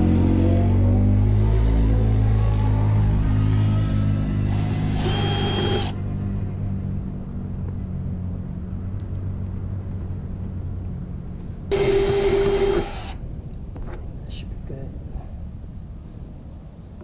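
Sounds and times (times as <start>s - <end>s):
low steady rumble: 0.0s - 17.0s
power drill whining: 4.5s - 6.0s, 11.7s - 13.2s.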